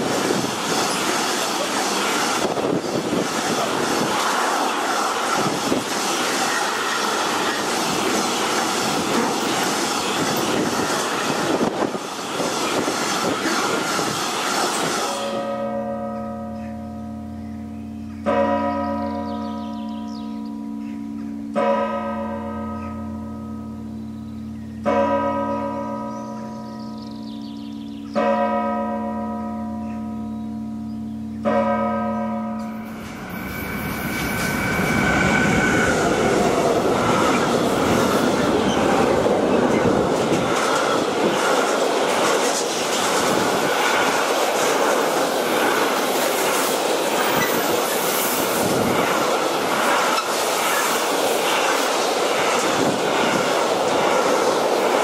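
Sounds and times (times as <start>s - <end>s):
freight train passing: 0.0s - 30.5s, 31.1s - 55.0s
church bell ringing: 15.2s - 33.5s.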